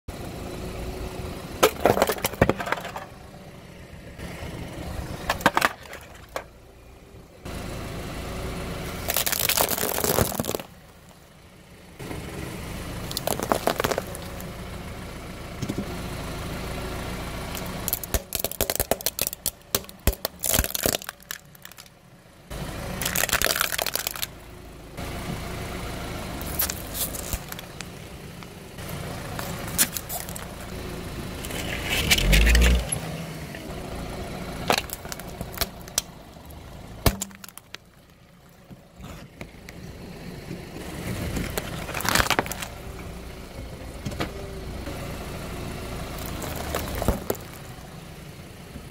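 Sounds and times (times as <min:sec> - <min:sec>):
tyre and engine rumble: 0:00.1 - 0:48.9
objects cracking under tyre: 0:01.6 - 0:03.2, 0:05.2 - 0:06.6, 0:09.0 - 0:11.2, 0:13.0 - 0:14.5, 0:17.5 - 0:22.0, 0:23.0 - 0:24.4, 0:26.4 - 0:30.8, 0:31.4 - 0:33.0, 0:34.6 - 0:39.8, 0:41.0 - 0:42.9, 0:46.2 - 0:47.8.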